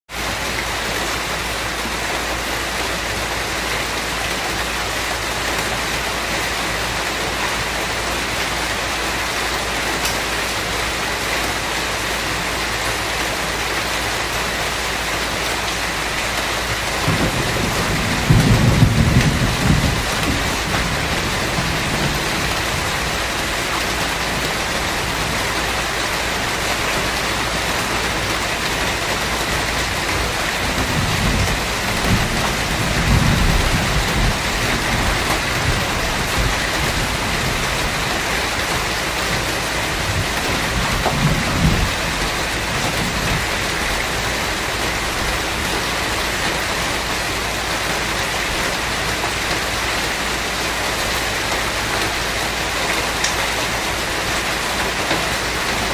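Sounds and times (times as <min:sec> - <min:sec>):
steady rain falling: 0:00.1 - 0:55.9
thunder rumble: 0:16.4 - 0:47.0.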